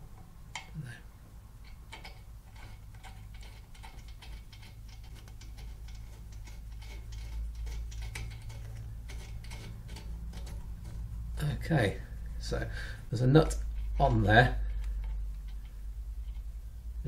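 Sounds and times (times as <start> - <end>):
metallic clicks of bolt turning: 1.6 - 11.0.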